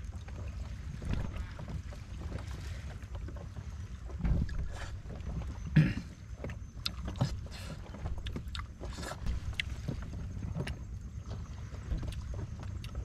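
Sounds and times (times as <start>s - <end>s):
water lapping against platform: 0.0s - 13.0s.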